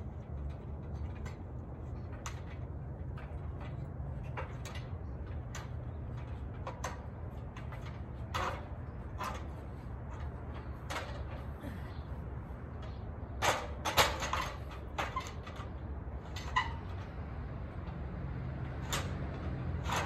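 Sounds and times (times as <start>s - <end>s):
clanks on metal ladder rungs: 0.0s - 20.0s.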